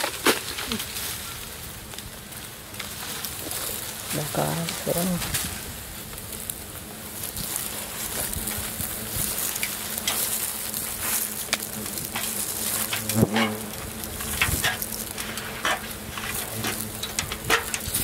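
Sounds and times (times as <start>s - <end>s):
rustles and clicks: 0.0s - 18.0s
wasps buzzing: 0.7s - 18.0s.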